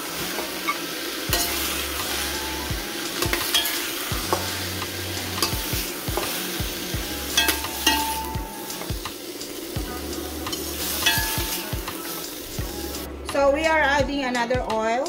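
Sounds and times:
vegetables sizzling in pan: 0.0 - 13.1
tongs clicking and scraping pan: 1.3 - 1.8, 3.1 - 4.6, 5.3 - 6.3, 7.3 - 8.9, 10.4 - 11.8.

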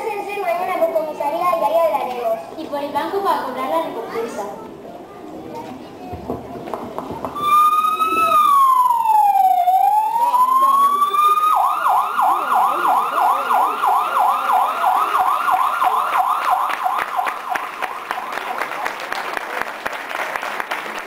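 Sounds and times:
siren wailing and yelping: 7.4 - 17.8.

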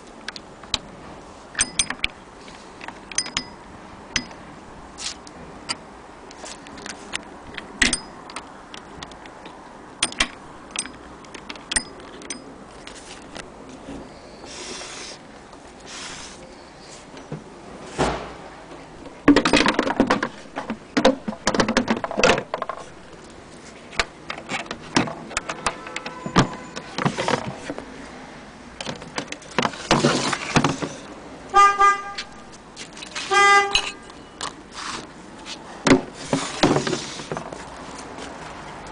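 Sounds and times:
knocks and clatter of wooden case: 19.1 - 22.9, 24.0 - 27.8
short horn toots: 33.2 - 34.0.

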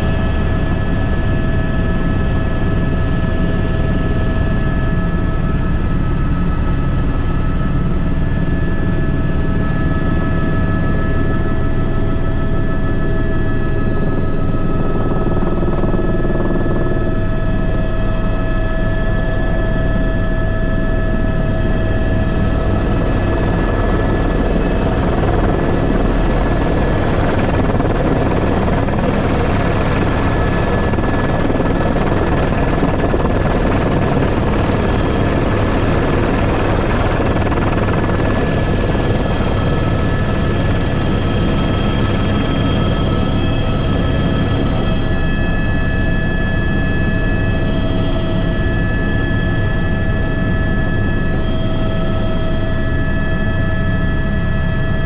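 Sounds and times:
helicopter rotor beat: 0.0 - 55.0
turbine whining: 19.9 - 46.1.

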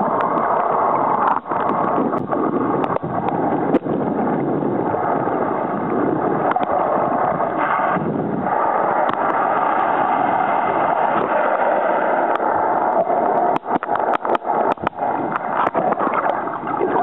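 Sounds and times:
muffled underwater rushing: 0.0 - 17.0
sharp clicks: 12.3 - 16.4.

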